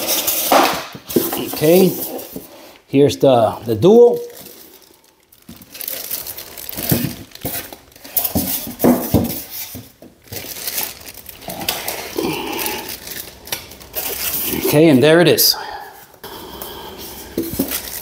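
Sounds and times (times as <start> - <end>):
plastic wrapping crinkling: 3.9 - 15.4, 16.0 - 18.0.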